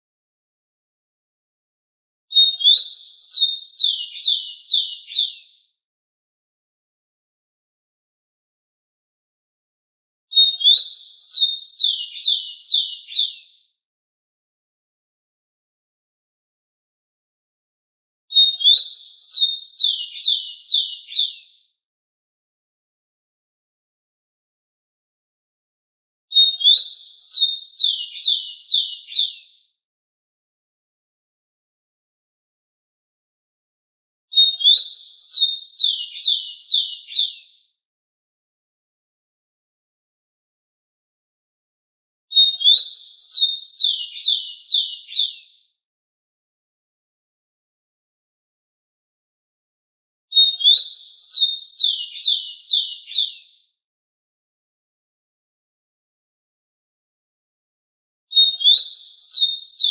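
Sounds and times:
sparrow singing: 0:02.3 - 0:05.6, 0:10.3 - 0:13.6, 0:18.3 - 0:21.6, 0:26.3 - 0:29.6, 0:34.3 - 0:37.6, 0:42.3 - 0:45.6, 0:50.3 - 0:53.6, 0:58.3 - 0:59.9.

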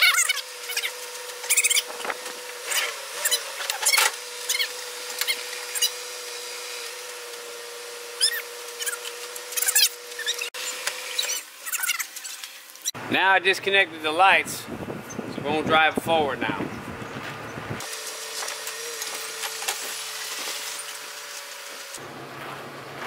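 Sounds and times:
rope creaking and squeaking: 0:00.0 - 0:06.7, 0:08.1 - 0:13.0.

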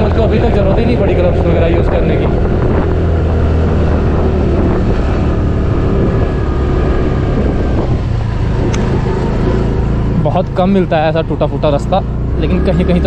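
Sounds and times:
wind buffeting microphone: 0:00.0 - 0:10.7
scooter engine running: 0:00.0 - 0:13.0
sharp click: 0:08.7 - 0:08.9.

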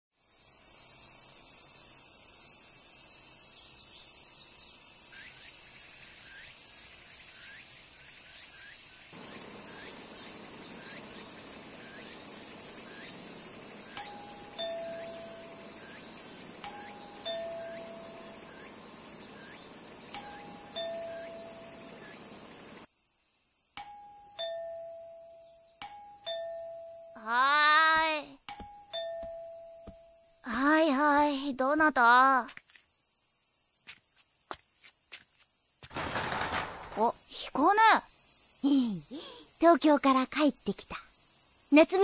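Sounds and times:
insects chorus: 0:00.2 - 0:42.0
two-tone doorbell chime: 0:14.0 - 0:18.6, 0:20.2 - 0:21.9, 0:23.8 - 0:27.2, 0:28.5 - 0:30.2.

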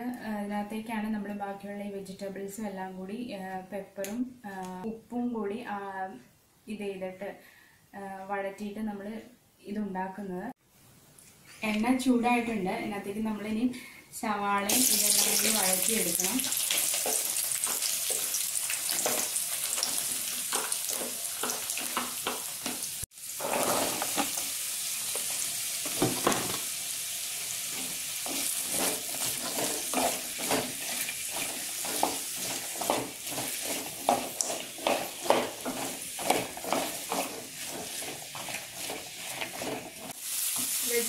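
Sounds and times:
vegetables sizzling in hot oil: 0:14.7 - 0:41.0
wooden spatula scraping pan: 0:14.9 - 0:24.4, 0:27.6 - 0:41.0.

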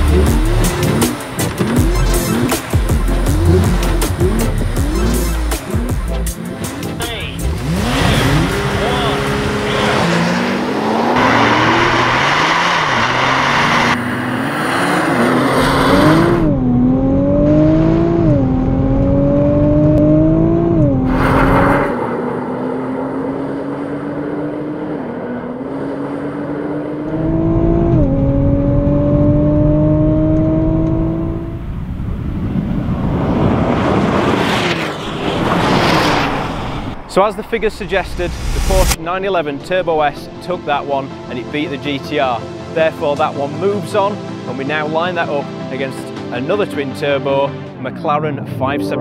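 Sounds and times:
car engines accelerating: 0:00.0 - 0:49.0
cars whooshing past: 0:07.4 - 0:16.5, 0:20.8 - 0:27.6, 0:30.2 - 0:39.9.

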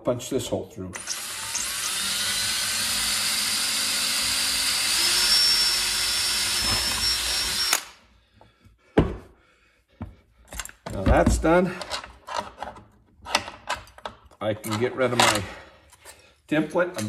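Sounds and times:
cordless drill boring plastic: 0:01.0 - 0:08.0.

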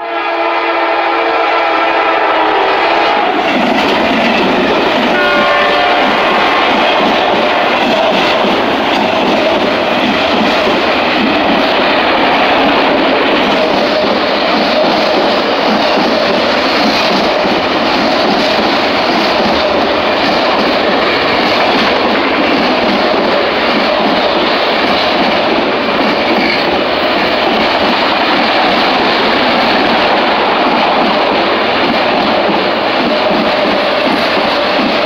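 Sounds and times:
train wheels on rails: 0:00.0 - 0:35.0.

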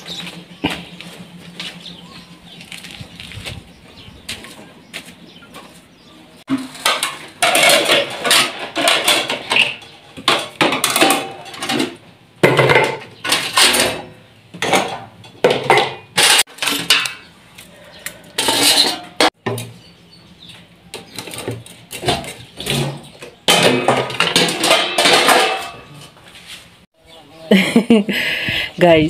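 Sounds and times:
metal pots clattering and scraping: 0:06.4 - 0:19.8, 0:20.9 - 0:26.8.

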